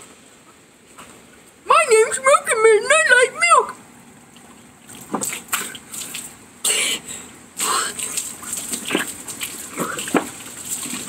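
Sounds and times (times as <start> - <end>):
milk pouring and splashing: 4.3 - 6.4, 7.6 - 11.0
person coughing: 6.7 - 8.0.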